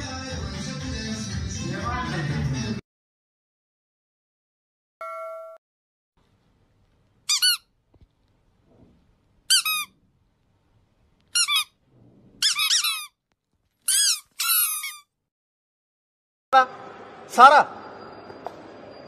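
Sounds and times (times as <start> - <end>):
short high-pitched squeaks: 11.4 - 13.2, 13.8 - 15.1.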